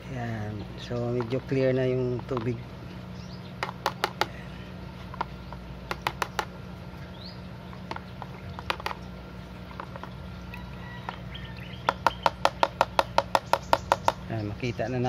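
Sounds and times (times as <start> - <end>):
water dripping into plastic tub: 7.7 - 14.6.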